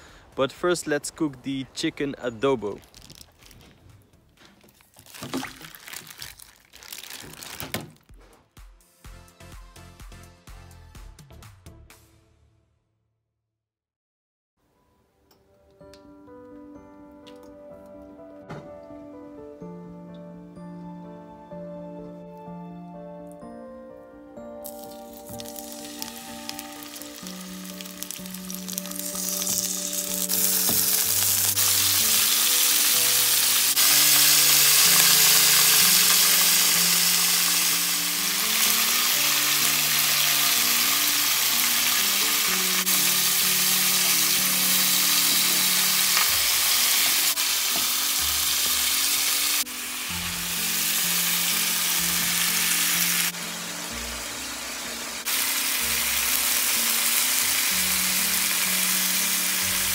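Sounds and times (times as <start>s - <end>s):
chicken sizzling in hot oil: 24.6s - 59.9s.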